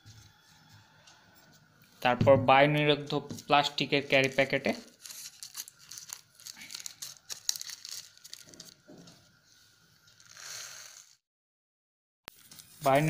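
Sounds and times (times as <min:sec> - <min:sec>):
plastic packet crinkling: 0:04.1 - 0:08.9.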